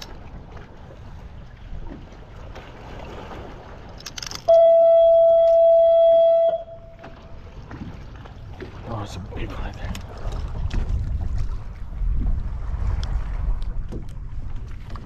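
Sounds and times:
water noise: 0.0 - 15.0
wind: 0.0 - 15.0
horn blast: 4.5 - 7.0.

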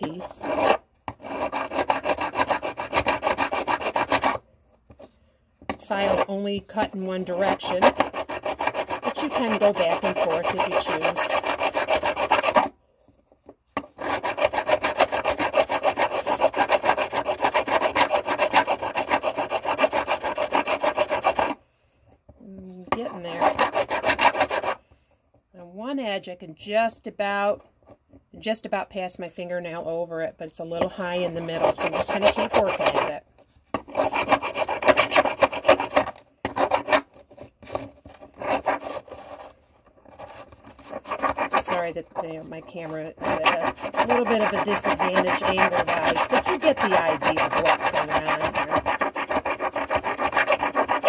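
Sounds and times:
hand file rasping on metal: 0.0 - 12.8, 13.8 - 21.6, 22.4 - 24.8, 30.7 - 51.0.

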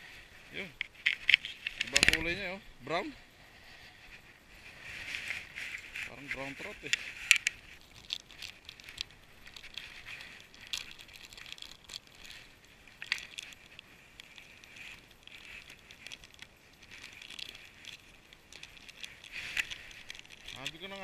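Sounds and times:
plastic packet crinkling: 6.1 - 21.0.

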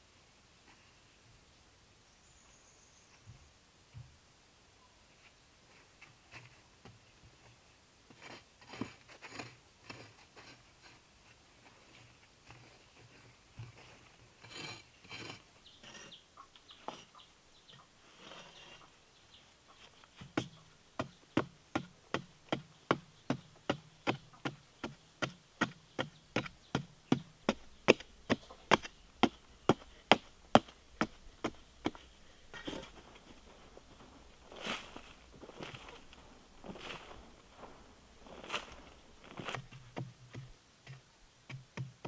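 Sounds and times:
hoe scraping dirt: 13.7 - 17.3, 18.0 - 19.0, 25.6 - 40.4
hoe chopping hard dirt: 20.3 - 40.5.

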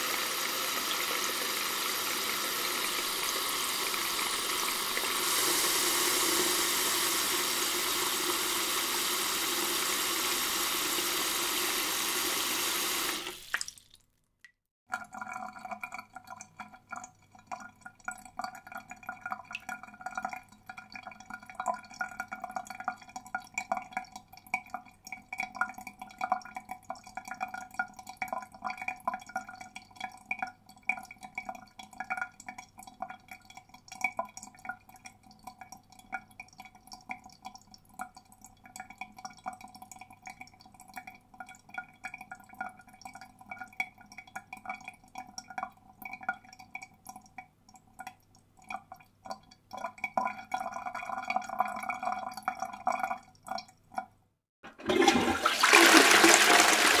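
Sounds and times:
water draining down plughole: 0.0 - 14.0, 54.7 - 57.0
water drips and plinks: 13.2 - 55.4.

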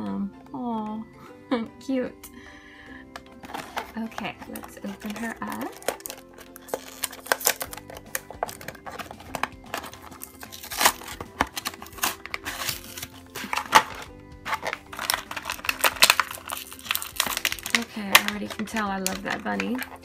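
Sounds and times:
light background music: 0.0 - 20.0
plastic packaging crinkling: 3.1 - 20.0.

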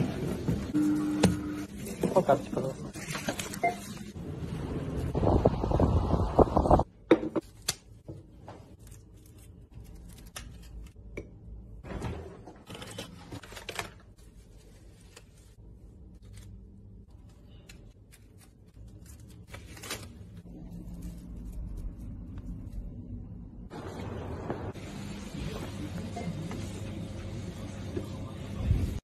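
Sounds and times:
wind gust noise: 5.1 - 6.8.

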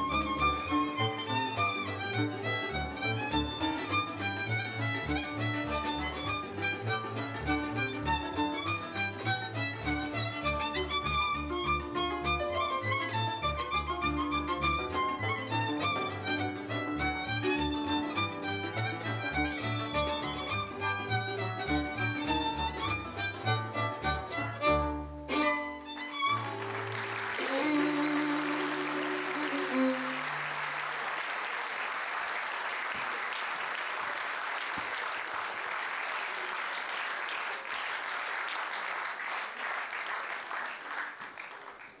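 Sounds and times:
violin-led folk dance music: 0.0 - 31.0
audience applause: 25.3 - 42.0.

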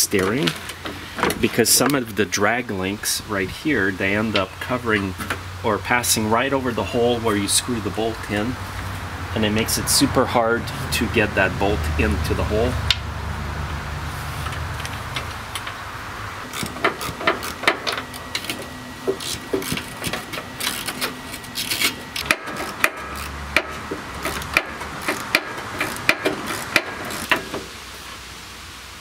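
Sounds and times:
metal taps and rubbing: 16.6 - 27.7
socket ratchet clicking: 22.2 - 27.6.

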